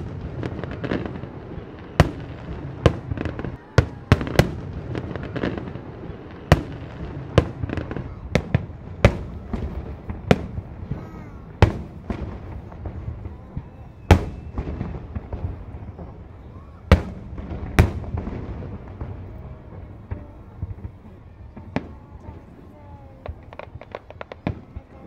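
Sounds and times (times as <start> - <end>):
firework bangs: 0.0 - 25.0
firework crackling and rumble: 0.0 - 25.0.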